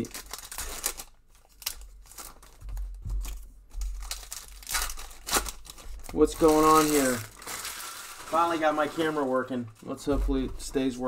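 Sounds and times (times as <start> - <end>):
foil wrappers crinkling: 0.0 - 10.1.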